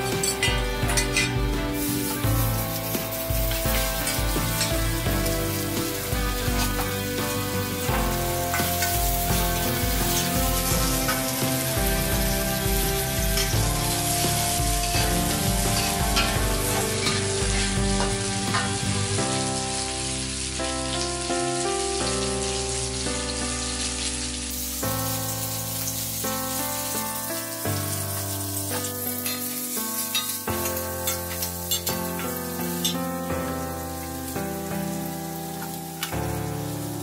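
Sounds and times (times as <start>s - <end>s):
food sizzling in oil: 0.0s - 37.0s
slow background music: 0.0s - 37.0s
metal spatula scraping a wok: 14.9s - 18.8s, 28.7s - 33.0s.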